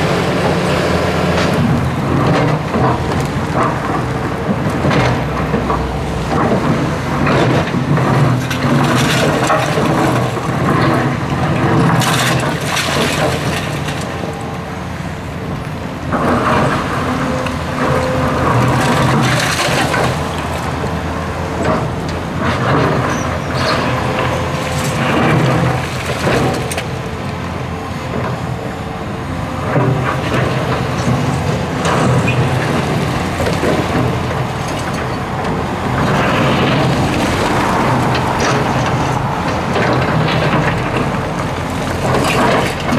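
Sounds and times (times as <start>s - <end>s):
excavator diesel engine: 0.0s - 42.9s
bucket scraping and clattering: 7.2s - 14.3s, 17.7s - 20.8s, 21.6s - 27.0s.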